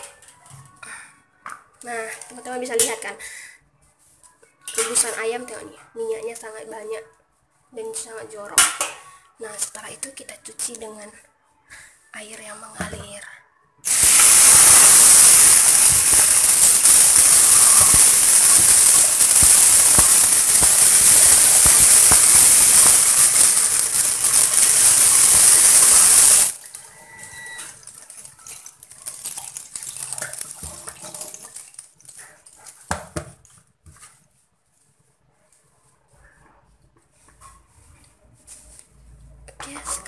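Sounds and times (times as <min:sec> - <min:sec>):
tap water running into sink: 0:13.9 - 0:26.6, 0:28.8 - 0:31.8.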